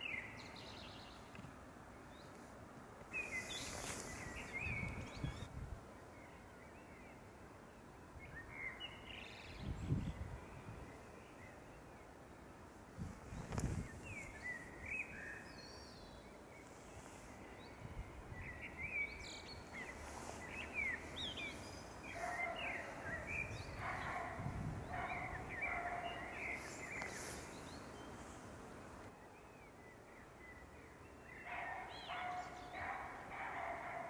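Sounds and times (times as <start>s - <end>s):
songbird singing: 0.0s - 34.0s
wind rumble on microphone: 3.6s - 5.9s, 9.3s - 11.0s, 12.9s - 14.7s, 17.7s - 27.6s.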